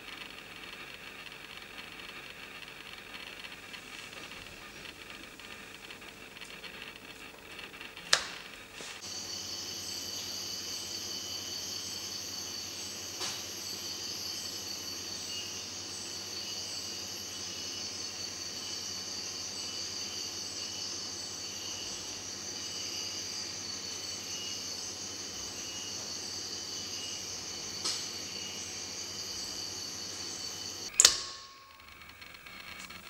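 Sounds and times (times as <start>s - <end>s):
insects buzzing and chirping: 0.0s - 33.0s
sharp click: 30.8s - 33.0s.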